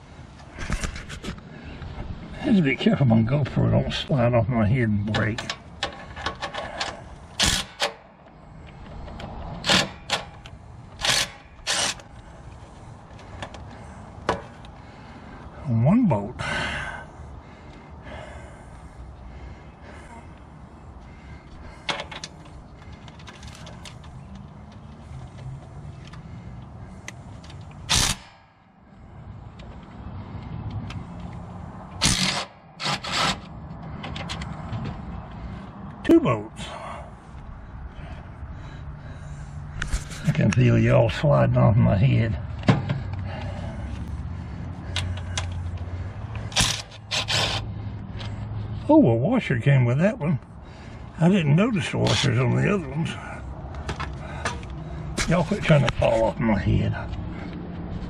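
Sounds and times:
impact wrench bursts: 7.3 - 8.0, 9.6 - 10.4, 11.0 - 12.1, 27.8 - 28.5, 32.0 - 33.5, 46.5 - 47.7.

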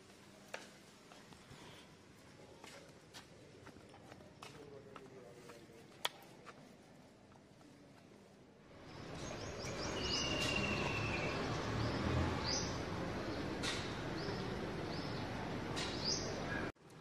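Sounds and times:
small birds chirping: 8.8 - 16.7.

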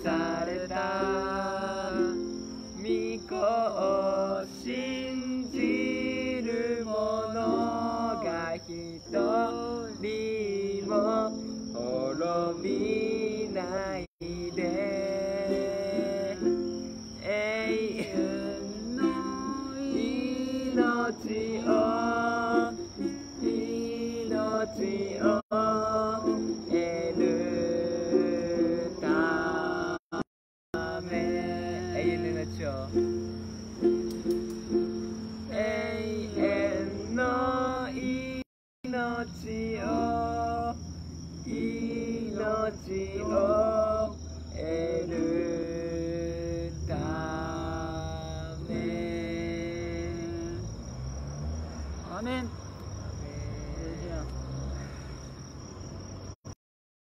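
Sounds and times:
man singing worship song: 0.0 - 16.5, 17.2 - 22.8, 23.5 - 33.0, 35.5 - 40.8, 41.4 - 50.7, 53.1 - 54.4
plucked stringed instrument: 31.1 - 35.6.

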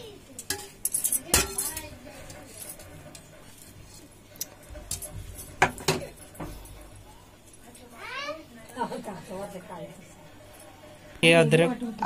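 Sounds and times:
steel bowl and plate clinking: 0.4 - 3.0.

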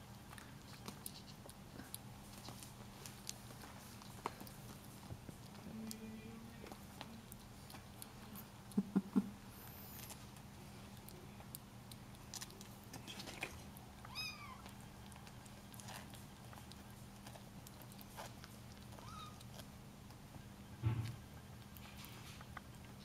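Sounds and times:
kitten eating clicks: 0.0 - 9.4, 10.0 - 23.0
kittens mewing: 18.9 - 19.6.

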